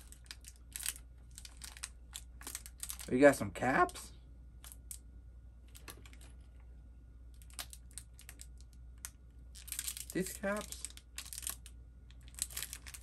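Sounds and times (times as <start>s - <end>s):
plastic bag clicks and crinkles: 0.0s - 3.1s, 7.4s - 13.0s.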